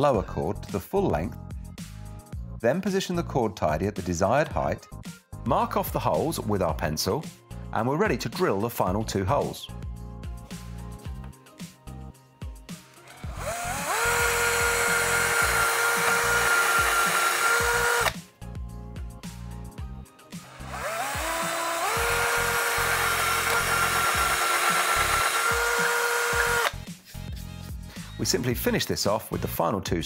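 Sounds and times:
cordless drill whining: 12.9s - 18.2s, 20.4s - 26.8s.

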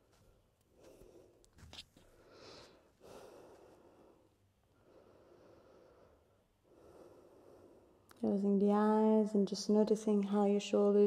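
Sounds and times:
slow deep breathing: 2.1s - 8.1s.

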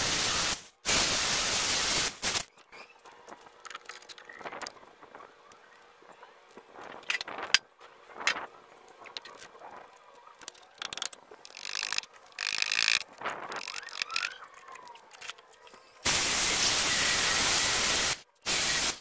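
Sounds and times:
tools clicking and rattling: 3.2s - 4.7s, 10.4s - 15.8s.

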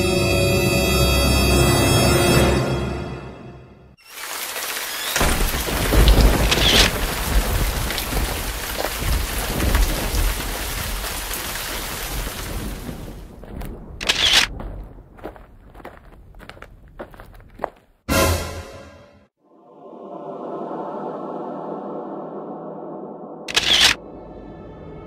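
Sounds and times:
rain hiss: 4.0s - 13.4s
thunder rumbles: 4.9s - 17.5s.

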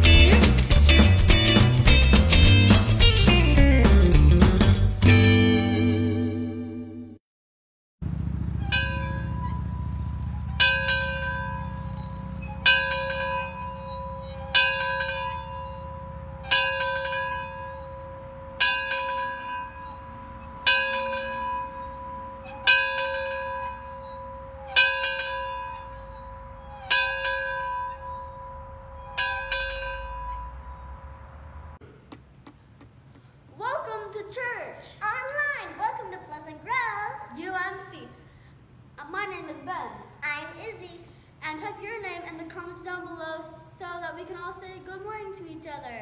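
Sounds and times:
church bell tolling: 8.6s - 31.2s.

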